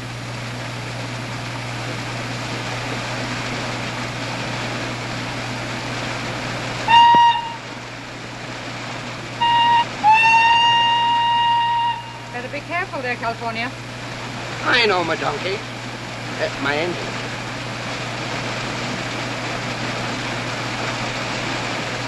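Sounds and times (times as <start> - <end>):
steam hissing: 2.0 - 22.0
steam whistle blasts: 6.8 - 7.7, 9.4 - 12.5.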